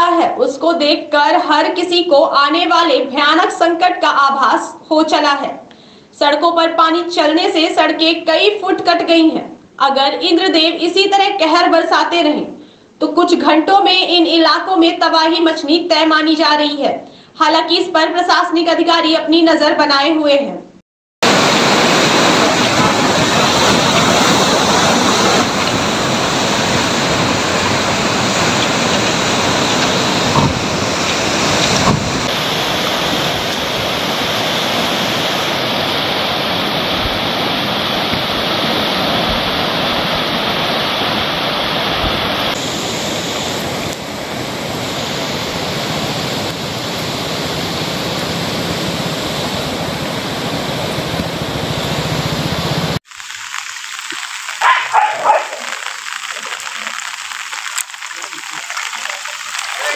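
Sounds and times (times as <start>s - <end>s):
turbulent water roaring: 21.2s - 59.9s.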